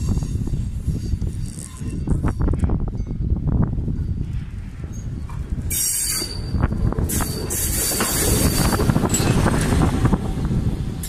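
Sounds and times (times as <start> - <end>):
rail vehicle low rumble: 0.0 - 11.0
wheel clatter: 4.2 - 11.0
high-pitched wheel squeal: 5.7 - 9.5.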